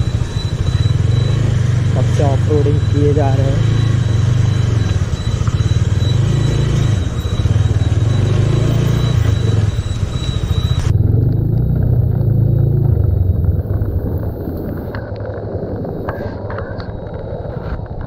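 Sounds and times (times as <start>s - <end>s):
motorcycle engine rumbling: 0.0s - 18.0s.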